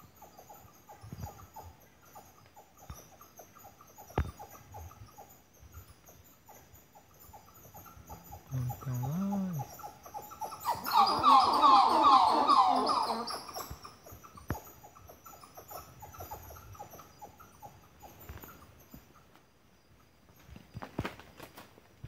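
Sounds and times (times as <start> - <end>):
animal calling rapid sliding notes: 10.7 - 13.7.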